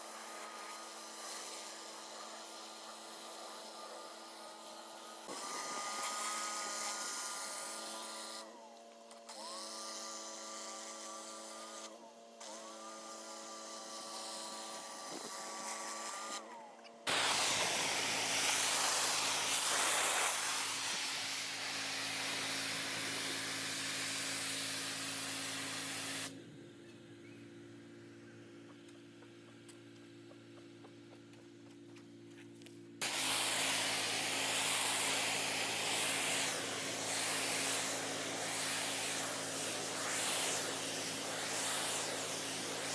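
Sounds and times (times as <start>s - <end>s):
loud hiss of water spray: 0.0s - 8.5s, 17.1s - 26.3s, 33.0s - 42.9s
pressure washer engine running: 17.1s - 26.4s, 33.0s - 42.9s.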